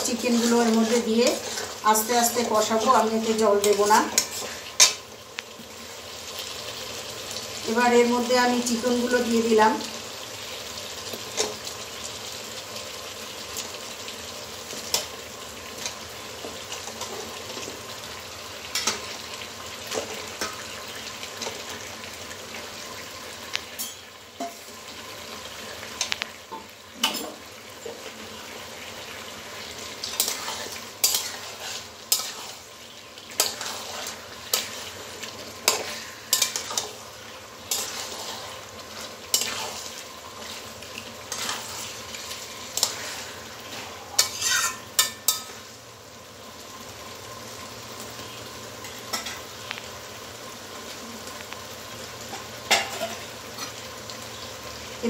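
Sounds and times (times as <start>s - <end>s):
chicken sizzling in a pan: 0.0s - 55.0s
metal spatula scraping a pan: 0.1s - 3.0s, 29.9s - 40.6s, 41.2s - 45.7s.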